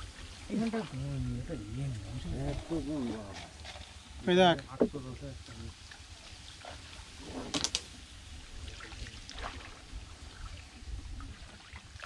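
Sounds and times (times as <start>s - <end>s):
splash and rustle: 0.0s - 4.4s, 5.0s - 12.0s
water splashes and drips: 8.6s - 12.0s.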